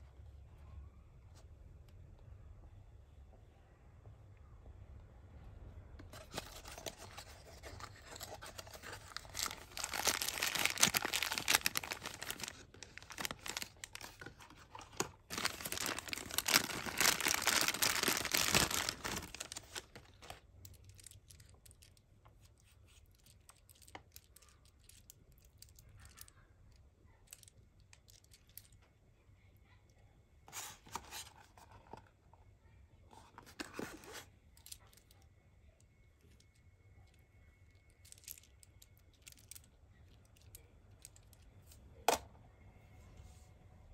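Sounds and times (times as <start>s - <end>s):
plastic bag crinkling: 6.1s - 22.0s.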